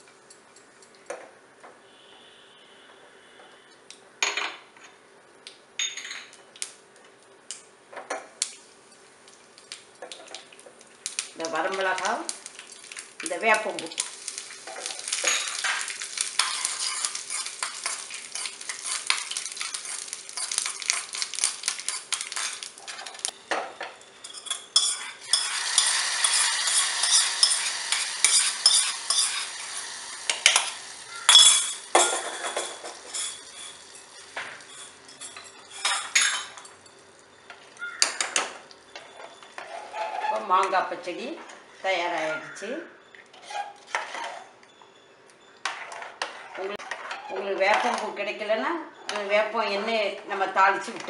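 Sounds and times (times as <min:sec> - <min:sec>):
spices sizzling and crackling in oil: 0:06.5 - 0:39.9
metal spoon scraping pot: 0:16.4 - 0:21.2, 0:24.2 - 0:29.8, 0:31.3 - 0:36.6, 0:39.0 - 0:40.7, 0:43.2 - 0:44.6, 0:45.6 - 0:48.2.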